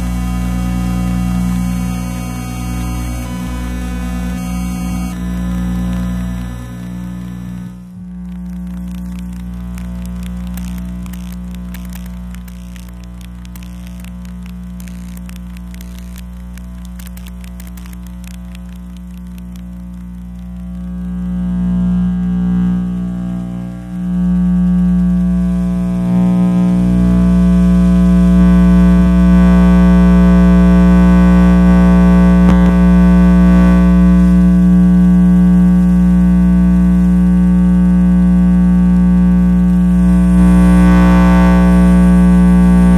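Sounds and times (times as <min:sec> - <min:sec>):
electrical buzz: 0:00.0 - 0:42.9
rapid crackling ticks: 0:08.1 - 0:21.1.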